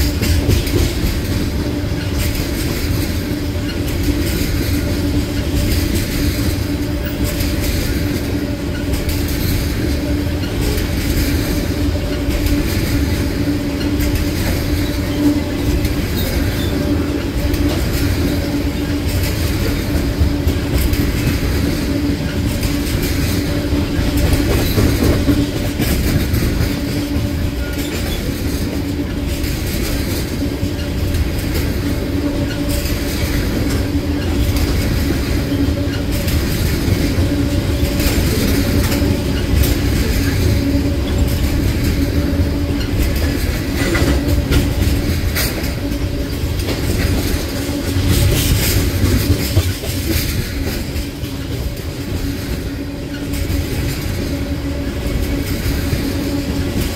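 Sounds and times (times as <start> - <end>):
train wheels rumbling on rail: 0.0 - 56.9
wheels clicking over rail joints: 0.0 - 56.9.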